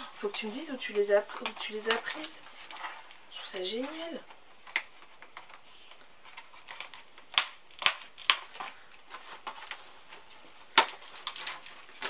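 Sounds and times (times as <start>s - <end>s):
plastic packaging snapping: 6.3s - 9.8s, 10.7s - 12.0s.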